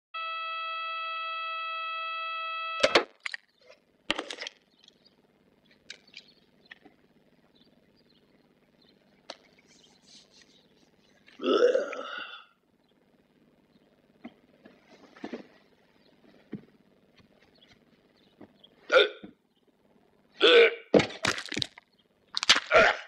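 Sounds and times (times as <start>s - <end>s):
alarm clock buzzer: 0.2s - 3.0s
old man throaty vocal noise: 11.3s - 12.6s, 18.8s - 19.3s, 20.4s - 20.9s
faint rustles and clicks: 14.2s - 18.7s.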